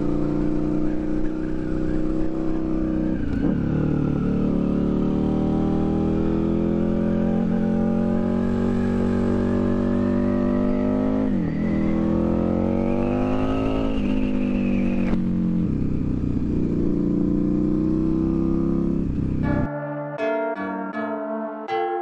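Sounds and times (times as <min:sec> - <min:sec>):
motorcycle engine accelerating: 0:00.0 - 0:19.7.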